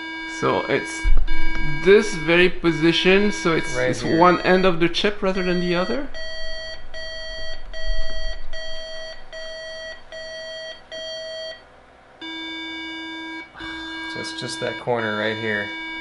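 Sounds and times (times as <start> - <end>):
long lower beeps: 0.8 - 11.6, 12.2 - 16.0
short high beeps: 1.2 - 10.7.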